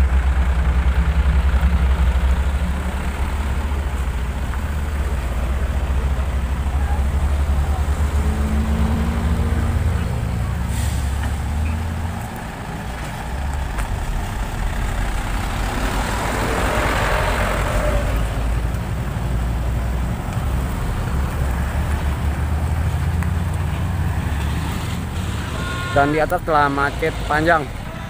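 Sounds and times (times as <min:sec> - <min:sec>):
traffic engines rumbling: 0:00.0 - 0:28.0
tyre hiss on wet road: 0:10.6 - 0:11.6.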